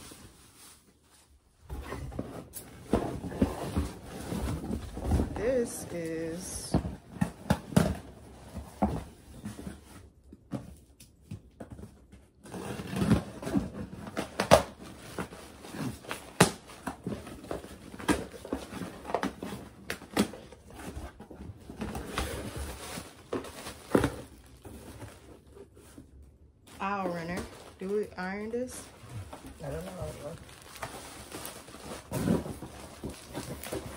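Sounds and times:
packaging rustling: 12.5s - 33.9s.

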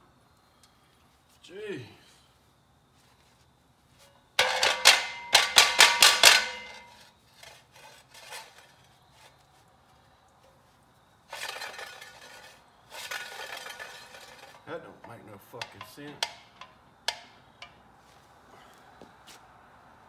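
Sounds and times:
metal tool striking metal: 4.4s - 7.0s, 15.1s - 17.8s
metal scraping rattle: 4.4s - 9.3s, 11.3s - 17.7s.

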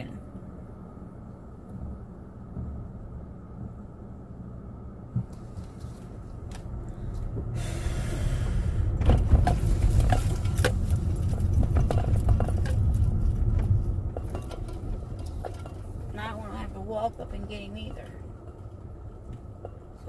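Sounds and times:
road rumble inside car: 0.0s - 20.0s
light rattles and clicks: 9.0s - 20.0s.

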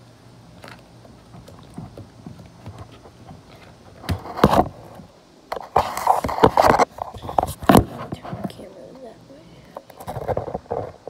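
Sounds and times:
knocks and rubbing on microphone: 1.3s - 8.7s, 9.8s - 11.0s.

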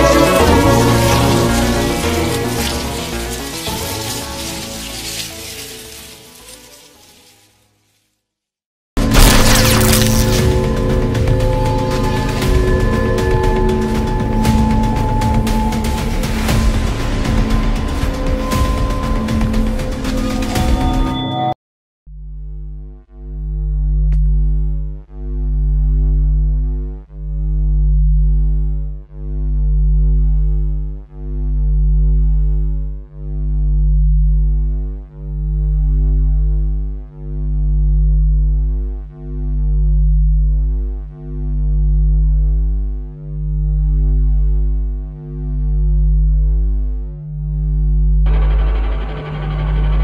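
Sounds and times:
pulsing synthesizer bass drone: 0.0s - 6.0s, 9.0s - 50.0s.

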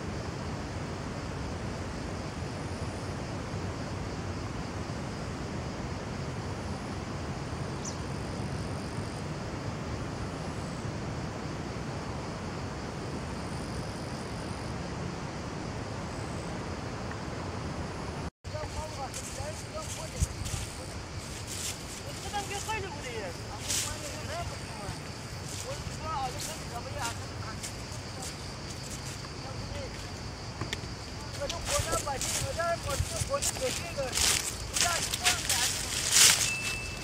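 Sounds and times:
wind buffeting microphone: 18.5s - 37.0s.

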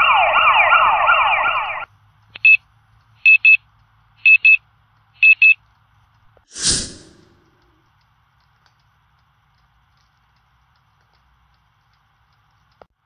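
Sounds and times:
warbling electronic alarm: 0.0s - 1.8s.

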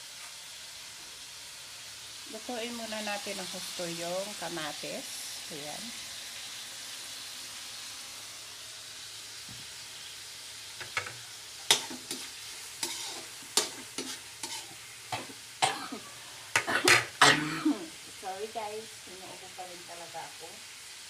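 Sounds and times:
tomatoes sizzling in a wok: 0.0s - 21.0s
metal spatula scraping a wok: 10.9s - 15.4s.

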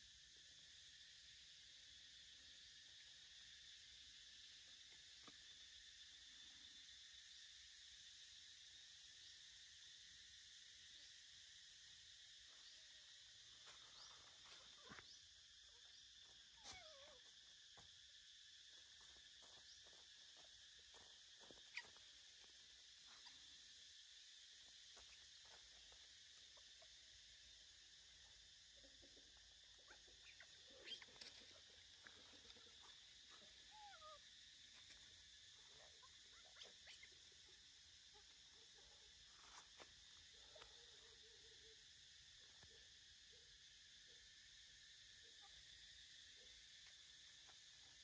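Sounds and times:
insect drone: 0.0s - 48.0s
soft chirps: 12.4s - 18.0s, 18.7s - 27.2s, 27.8s - 41.8s.

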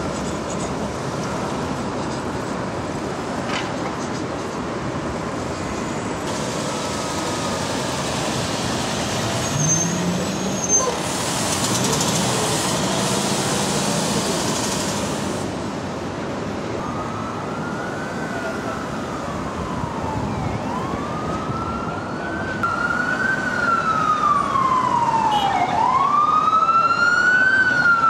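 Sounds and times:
city street traffic: 0.0s - 28.0s
heavy vehicle engine pulling away: 6.3s - 15.6s
high brake squeal: 9.2s - 14.9s
loud hiss: 10.9s - 15.4s.

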